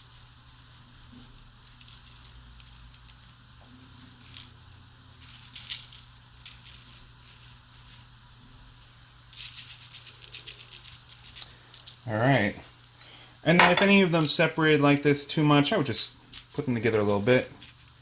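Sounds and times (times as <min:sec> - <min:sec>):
sugar grains ticking: 0:00.0 - 0:04.6, 0:05.2 - 0:08.2, 0:09.3 - 0:13.2
low steady hum: 0:00.0 - 0:18.0.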